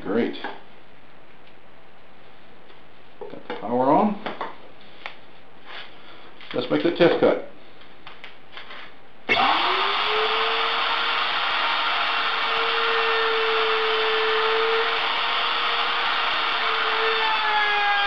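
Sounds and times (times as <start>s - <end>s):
router motor whining: 9.3s - 18.0s.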